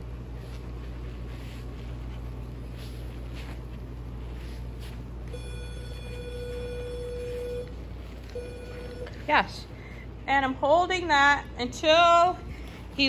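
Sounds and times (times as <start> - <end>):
steady low hum: 0.0 - 13.0
steady high beep: 5.4 - 7.7.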